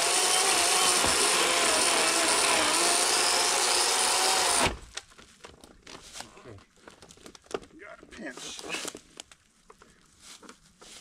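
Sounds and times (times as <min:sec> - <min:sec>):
electric chainsaw cutting log: 0:00.0 - 0:04.8.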